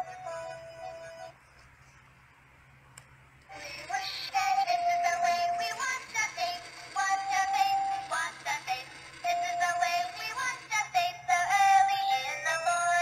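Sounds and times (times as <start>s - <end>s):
toy bank electronic melody: 0.0s - 1.3s, 3.5s - 13.0s
synthesized singing voice: 3.5s - 13.0s.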